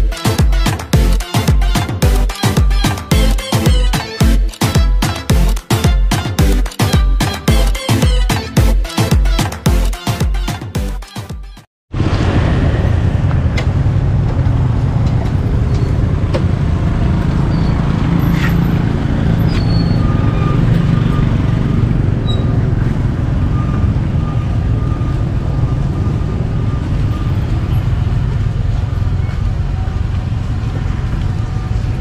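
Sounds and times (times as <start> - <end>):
low rumble of street traffic: 11.9 - 32.0
motor scooters passing: 12.0 - 32.0.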